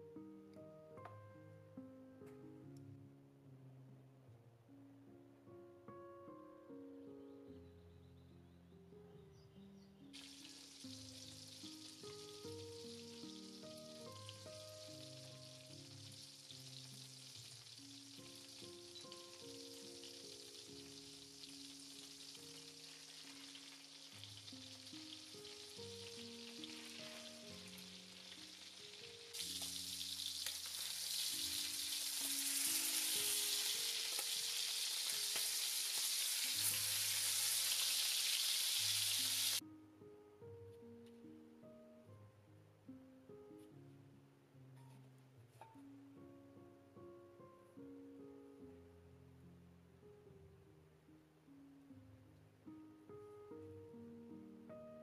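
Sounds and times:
butter sizzling in a skillet: 10.2s - 39.6s
steaks searing: 10.2s - 39.6s.

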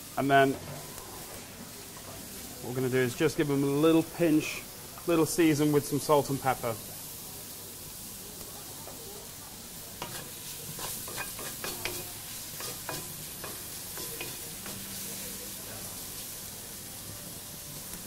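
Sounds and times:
prawns sizzling in a wok: 0.0s - 18.0s
wooden spoon scraping a wok: 10.0s - 14.9s.

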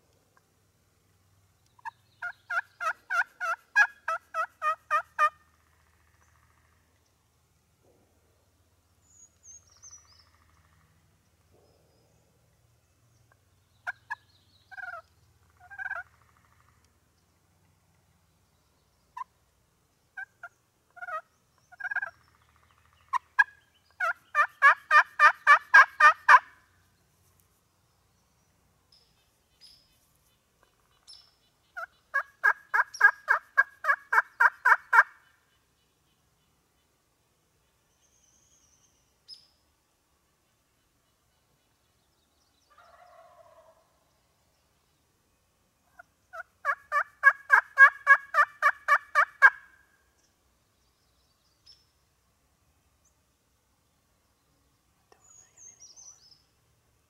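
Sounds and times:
turkey yelping: 2.2s - 5.4s, 13.8s - 15.0s, 15.6s - 16.4s, 20.2s - 21.2s, 23.1s - 26.6s, 31.8s - 35.2s, 46.3s - 49.7s.

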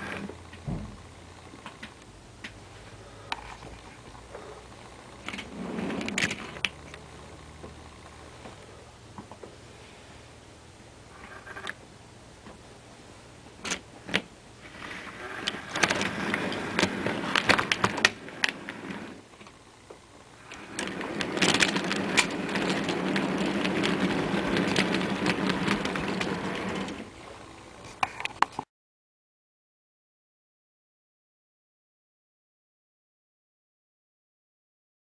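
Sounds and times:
wheels clicking over rails: 13.6s - 19.6s, 20.4s - 27.2s
model train motor hum: 20.3s - 27.2s.

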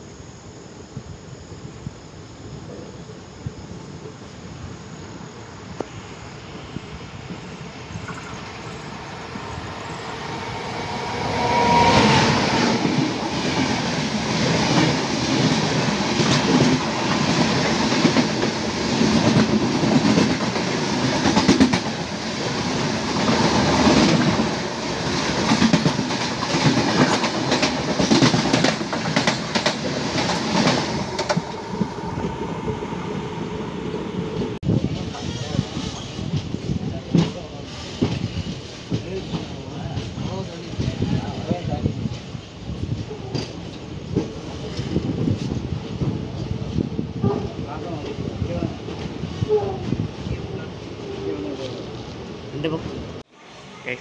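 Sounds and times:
heavy rush of air: 4.5s - 35.1s.

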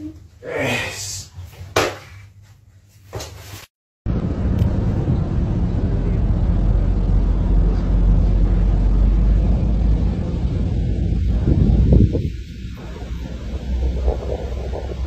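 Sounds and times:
loud low rumble: 4.1s - 15.0s.

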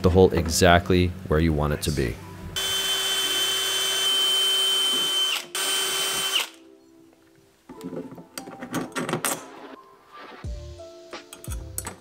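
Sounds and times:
cordless drill whining: 2.6s - 6.6s.

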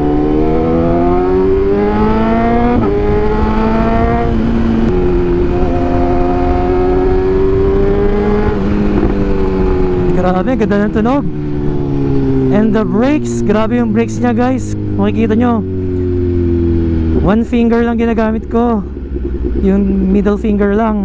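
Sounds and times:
motorcycle engine accelerating: 0.0s - 21.0s.

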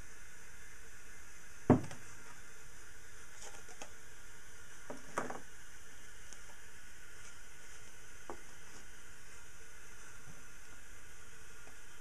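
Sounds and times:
steady hiss: 0.0s - 12.0s
metal pipe knocking on wooden bench: 1.7s - 2.0s.

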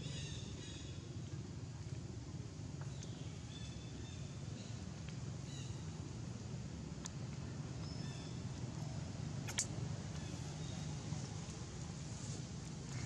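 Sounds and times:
light ticks: 7.0s - 8.7s.

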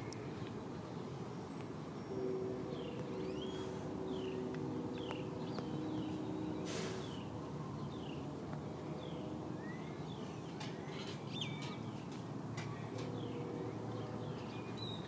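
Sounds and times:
distant city rumble: 0.0s - 15.0s
distant train horn: 2.0s - 7.5s
small birds chirping: 9.0s - 15.0s.

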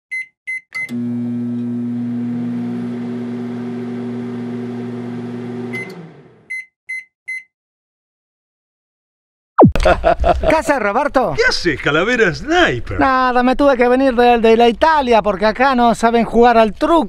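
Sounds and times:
microwave keypad beeps: 0.1s - 1.0s, 6.5s - 7.5s
microwave end beeps: 0.1s - 2.2s, 5.6s - 7.5s
microwave humming: 0.8s - 6.5s.

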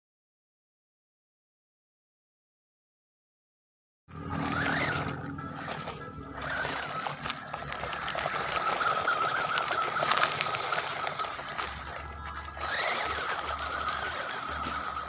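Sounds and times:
toy truck electric motor whining: 4.1s - 15.0s
tyres crunching on gravel: 4.2s - 15.0s.

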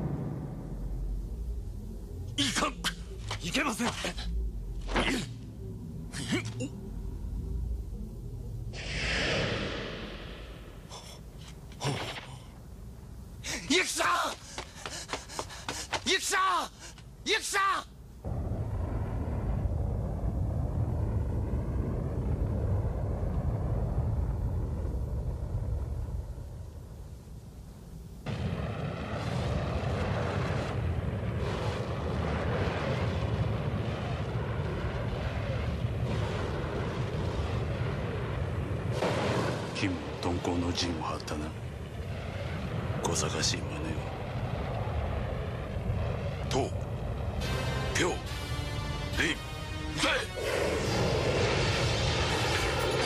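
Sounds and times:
low rumble: 0.0s - 13.4s, 18.2s - 53.0s
rushing wind-like noise: 6.8s - 11.4s
rushing whoosh: 8.8s - 10.9s.

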